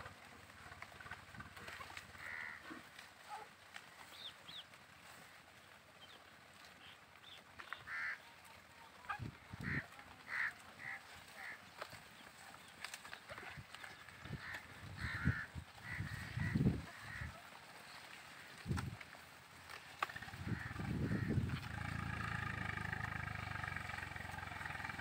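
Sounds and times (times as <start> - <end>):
honking animal calls: 0.6 - 3.5, 7.7 - 12.0, 13.3 - 18.6, 20.0 - 25.0.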